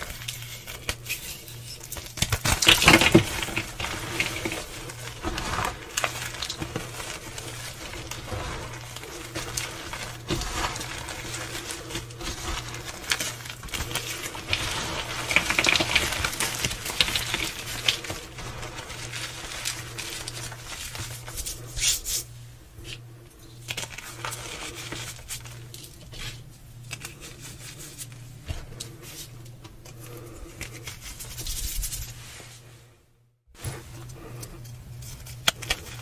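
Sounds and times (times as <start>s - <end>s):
chalk and petals crunching in hands: 0.0s - 22.3s.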